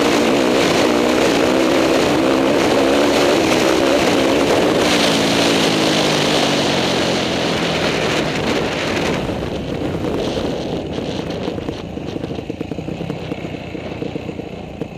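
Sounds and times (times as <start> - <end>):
motorcycle engine: 0.0 - 14.9
wind rush on microphone: 0.0 - 14.9.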